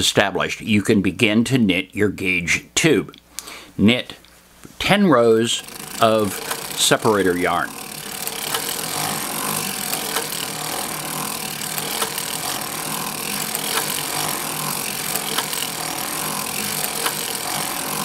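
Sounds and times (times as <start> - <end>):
knitting machine rasp: 5.5 - 18.0.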